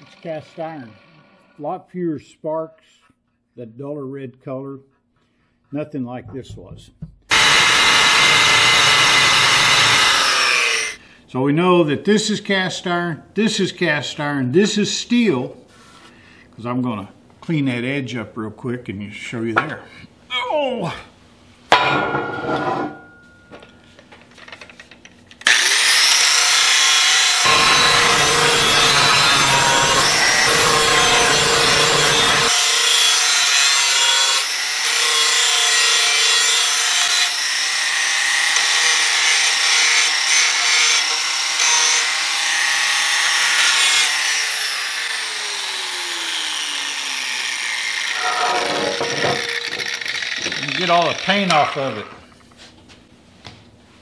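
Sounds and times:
angle grinder grinding steel: 0.0s - 1.6s, 7.3s - 11.0s, 25.4s - 52.2s
grinder spinning down whine: 7.3s - 11.0s, 27.2s - 32.5s, 44.7s - 51.5s.

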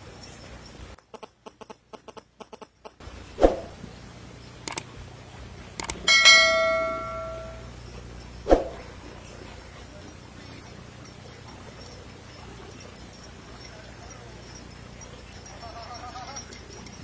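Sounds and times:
mouse clicks: 4.6s - 4.9s
bright bell ding: 6.0s - 7.8s.

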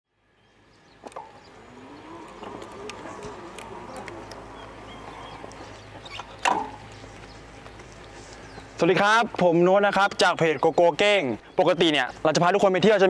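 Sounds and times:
steady low hum: 0.1s - 12.4s
faint bird chirps: 0.3s - 8.8s
sharp clicks: 1.0s - 7.0s.

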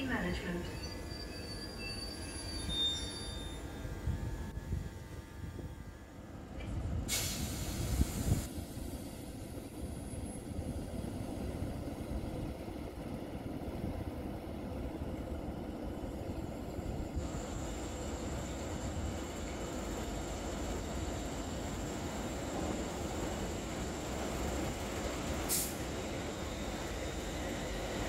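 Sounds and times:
train rumbling: 0.0s - 28.0s
air brakes hissing: 7.1s - 9.3s, 25.4s - 25.9s.

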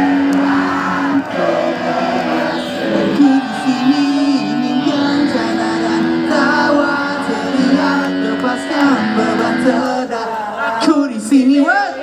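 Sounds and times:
live rock band playing: 0.0s - 10.0s
person singing: 0.0s - 11.8s.

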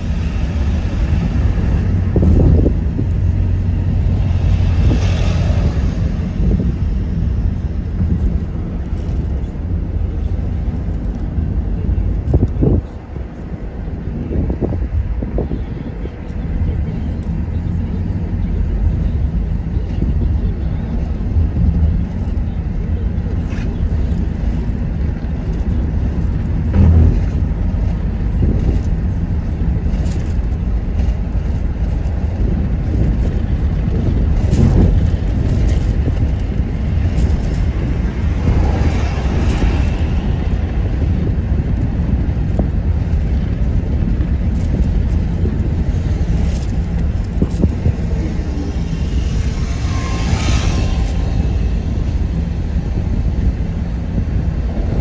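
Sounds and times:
vehicle rumble: 0.0s - 55.0s
knocks and rattles: 26.7s - 28.9s.

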